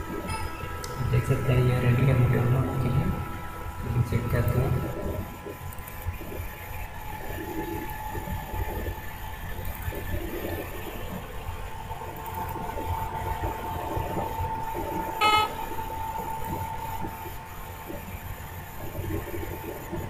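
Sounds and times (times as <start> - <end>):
faint hum: 0.0 - 20.0
short horn toot: 15.2 - 15.7.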